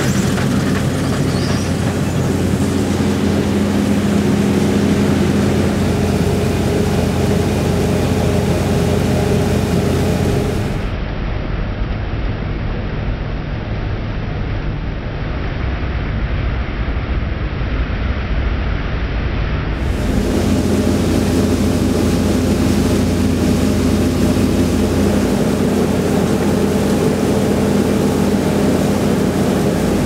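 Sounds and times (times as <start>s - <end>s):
combine harvester engine and threshing drone: 0.0s - 11.0s, 19.8s - 30.0s
multi-tone machinery hum: 0.0s - 11.0s, 19.7s - 30.0s.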